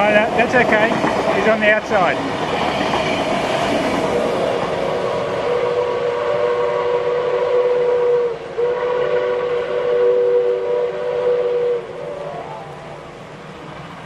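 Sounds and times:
passing train rumble: 0:00.0 - 0:14.0
steam locomotive whistle blast: 0:05.1 - 0:13.0.

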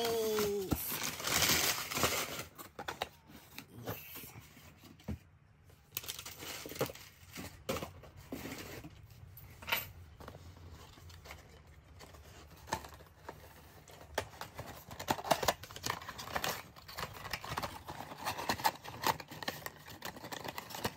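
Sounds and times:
packing paper crumpling: 0:00.0 - 0:03.8.

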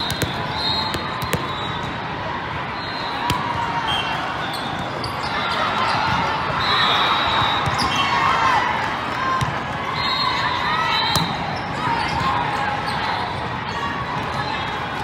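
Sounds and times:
shoe squeals: 0:00.0 - 0:02.0, 0:02.7 - 0:08.3.

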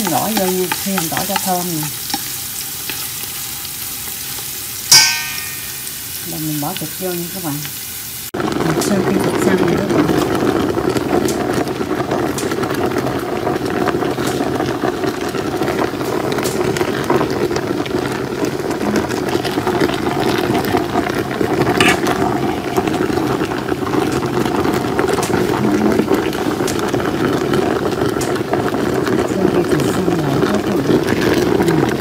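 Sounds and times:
pork sizzling and bubbling: 0:00.0 - 0:32.0.

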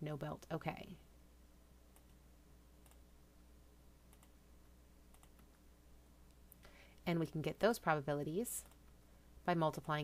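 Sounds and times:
low electrical hum: 0:00.0 - 0:10.0
faint computer clicks: 0:02.8 - 0:03.0, 0:04.1 - 0:04.4, 0:05.1 - 0:05.6.

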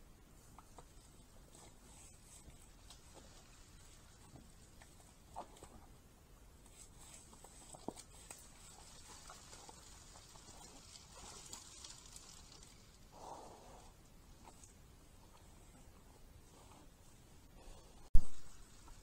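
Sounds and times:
steady hiss: 0:00.0 - 0:19.0
boars rustling through dry leaves: 0:01.0 - 0:05.6, 0:06.8 - 0:13.4.

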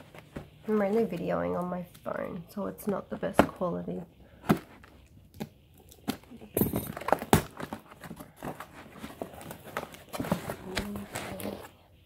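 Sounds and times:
cardboard box being opened: 0:06.0 - 0:11.7.

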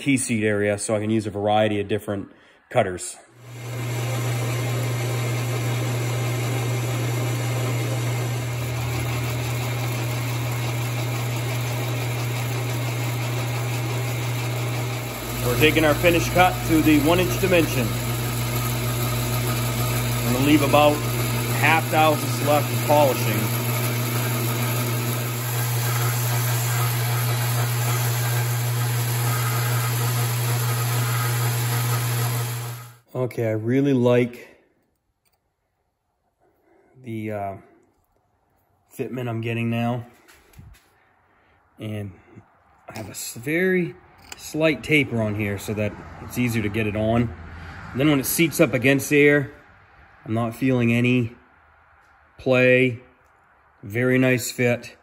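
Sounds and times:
lathe drive droning: 0:03.4 - 0:33.0, 0:44.2 - 0:49.4
lathe tool cutting steel: 0:03.4 - 0:33.0.

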